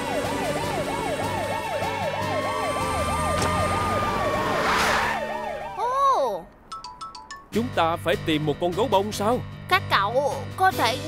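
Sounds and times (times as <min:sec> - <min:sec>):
cartoon siren yelping: 0:00.3 - 0:06.4
short rush of noise: 0:04.1 - 0:05.5.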